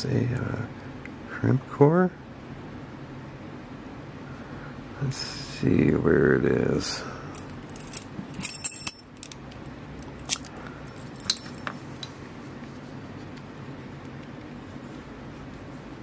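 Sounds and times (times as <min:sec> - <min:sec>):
low room hum: 0:00.0 - 0:16.0
keys clinking against lock: 0:07.3 - 0:09.6, 0:10.2 - 0:12.1.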